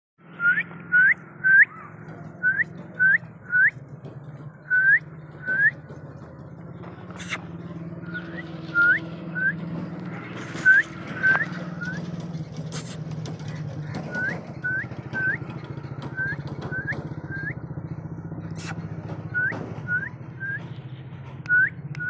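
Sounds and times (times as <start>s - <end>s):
person whistling chirps: 0.4s - 1.7s, 2.4s - 3.7s, 4.7s - 5.7s, 8.3s - 9.6s, 10.6s - 12.0s, 16.2s - 17.6s, 19.4s - 20.6s, 21.5s - 22.0s.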